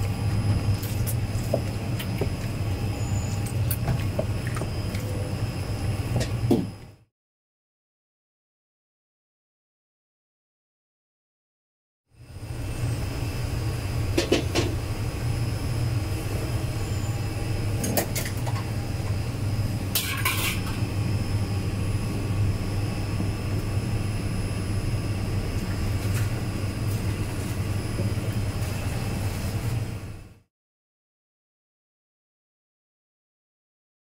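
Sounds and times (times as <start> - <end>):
low mechanical hum: 0.0 - 7.1, 12.2 - 30.5
metal kitchenware clinking: 20.0 - 20.7.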